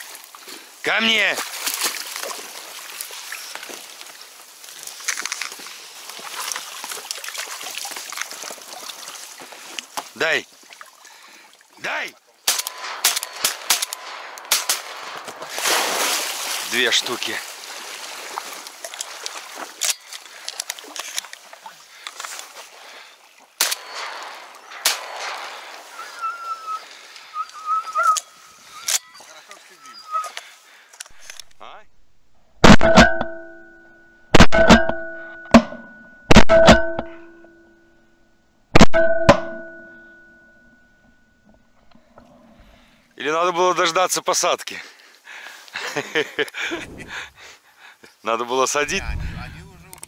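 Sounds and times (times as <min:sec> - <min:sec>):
reeds rustling and crackling: 0:00.0 - 0:11.1, 0:12.5 - 0:31.6
faint water sounds: 0:00.0 - 0:13.0, 0:14.0 - 0:31.9
shotgun shots with echo: 0:12.5 - 0:16.2, 0:23.6 - 0:26.0.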